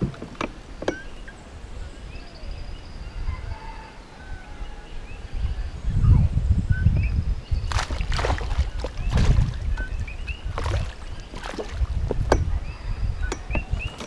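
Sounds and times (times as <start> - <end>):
low microphone rumble: 5.3 - 14.0.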